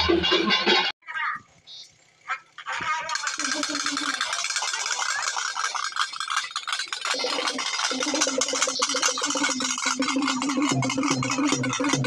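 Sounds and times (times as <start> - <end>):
fast drumming with sticks: 2.8 - 12.0
steady pitched tone: 3.1 - 12.0.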